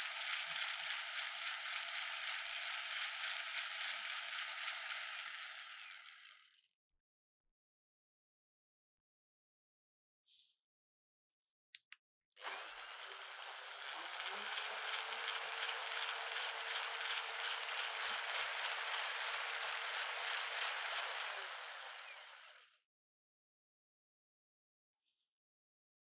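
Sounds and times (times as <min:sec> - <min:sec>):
electric mixer whisking: 0:00.0 - 0:06.5, 0:12.4 - 0:22.8.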